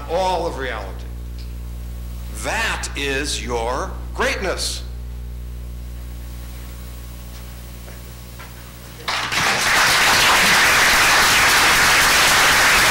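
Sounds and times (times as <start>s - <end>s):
low steady hum: 0.0s - 11.0s
audience applauding: 9.1s - 12.9s.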